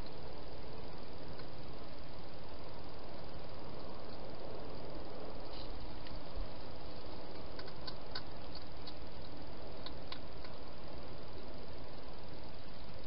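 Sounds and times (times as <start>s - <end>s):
steady hiss: 0.0s - 13.0s
faint clicks: 7.3s - 10.6s.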